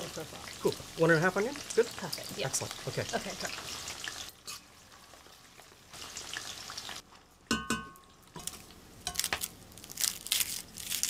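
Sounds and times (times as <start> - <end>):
onions deep-frying in oil: 0.0 - 11.0
garlic crackling as peeled: 8.4 - 11.0.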